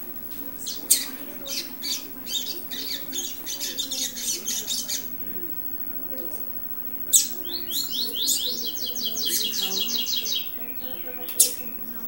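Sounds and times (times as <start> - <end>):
bird high chattering notes: 0.6 - 5.3, 6.9 - 12.0.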